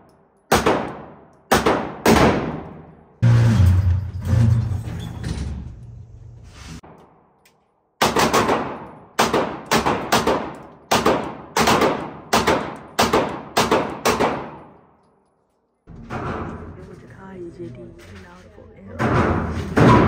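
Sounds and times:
pistol shots with ringing echo: 0.5s - 3.0s, 8.0s - 14.8s.

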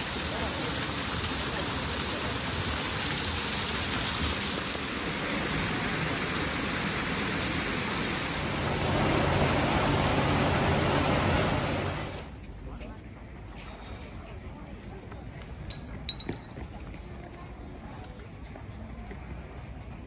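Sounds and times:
water cascading down rocks: 0.0s - 12.3s
water pouring into a pool: 0.0s - 12.3s.

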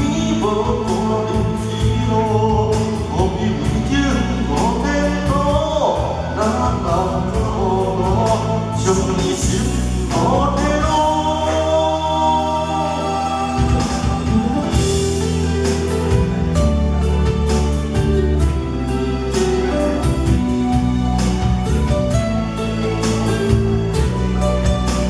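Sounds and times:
man singing into microphone: 0.0s - 15.0s
instrumental accompaniment: 0.0s - 25.0s.

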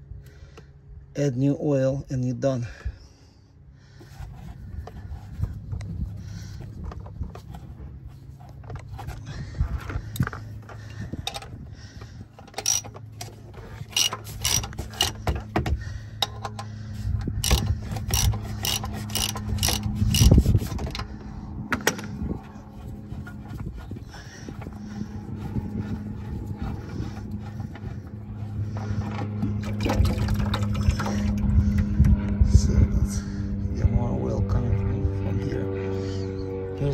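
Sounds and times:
steady low hum: 0.0s - 36.9s
ratchet clicking: 12.5s - 13.0s, 13.8s - 15.2s, 17.4s - 20.5s.

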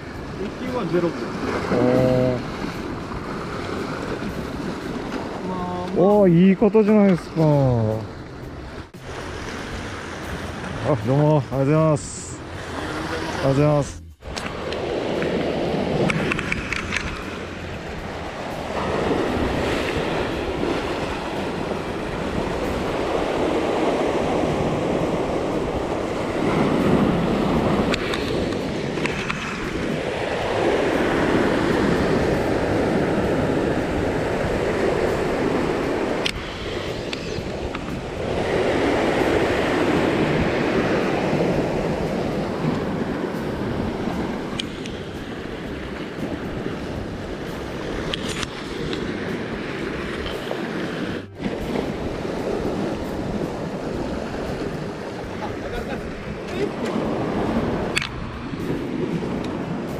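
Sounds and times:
wind buffeting microphone: 0.0s - 6.0s, 8.0s - 59.9s
waves washing against rocks: 0.0s - 7.9s, 8.8s - 59.9s
sharp click: 44.5s - 45.0s.

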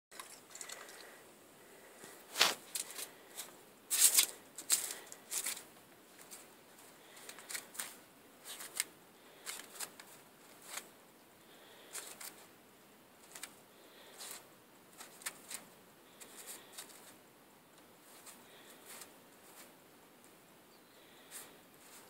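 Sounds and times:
footsteps crunching in snow: 2.2s - 7.2s.

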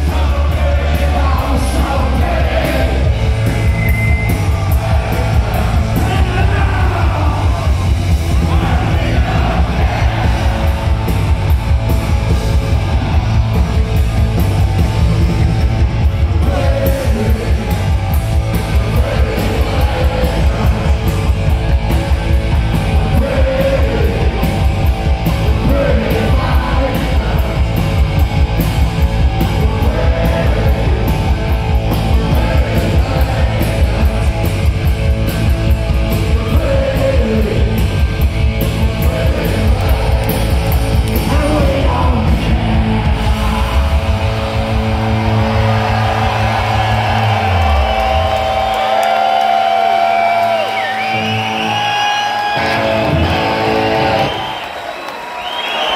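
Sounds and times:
punk rock band playing live: 0.0s - 54.6s
singer shouting: 5.8s - 10.1s.

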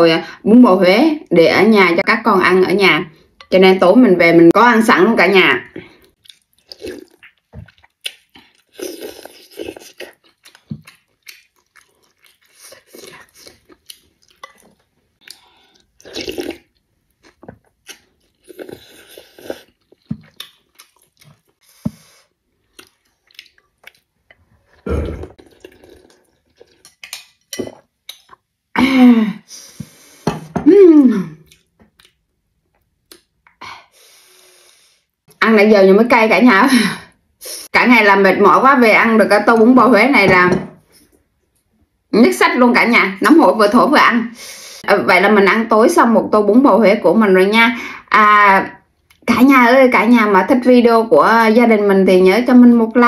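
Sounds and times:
chewing: 6.0s - 28.5s, 31.4s - 33.3s
slurping noodles and broth: 8.6s - 10.2s, 15.6s - 16.6s, 18.4s - 19.9s.

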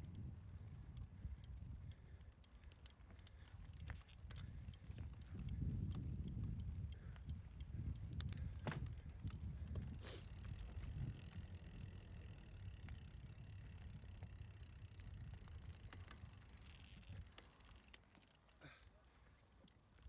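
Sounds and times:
bike tyres rumbling on trail: 0.0s - 19.3s
bike clicks and rattles: 0.0s - 20.0s
wind on microphone: 3.7s - 13.5s.

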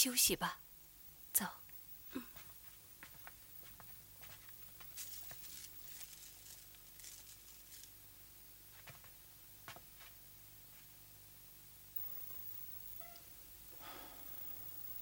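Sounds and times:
low steady hum: 0.0s - 15.0s
faint rustling: 2.2s - 8.0s.

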